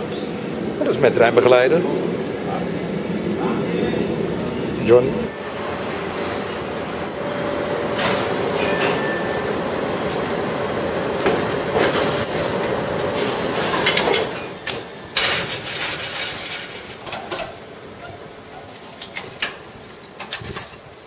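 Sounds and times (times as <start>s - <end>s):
train rumbling: 0.0s - 21.0s.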